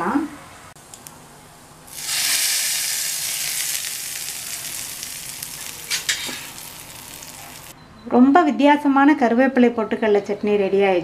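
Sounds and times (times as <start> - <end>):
hot oil sizzling: 1.9 - 7.7.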